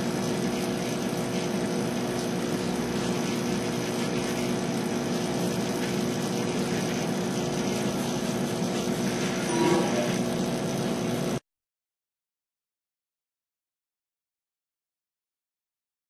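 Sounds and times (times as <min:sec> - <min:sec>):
aquarium pumps humming: 0:00.0 - 0:11.4.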